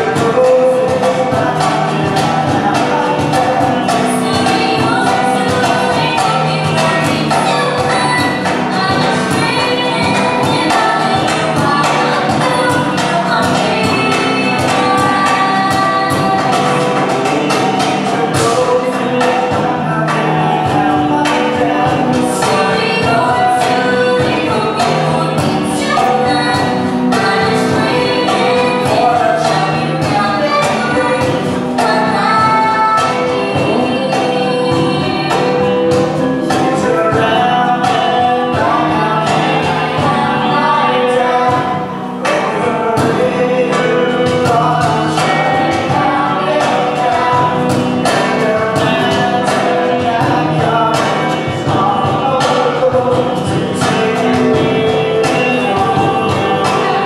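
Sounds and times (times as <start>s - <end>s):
group singing live music: 0.0s - 57.0s.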